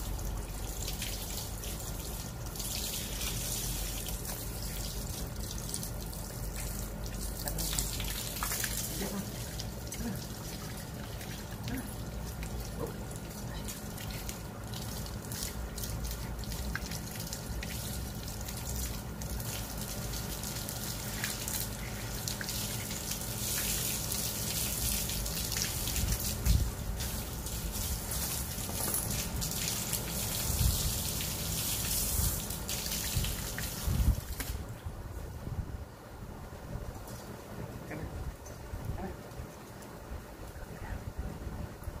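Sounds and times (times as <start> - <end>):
hose spraying water: 0.0 - 34.6.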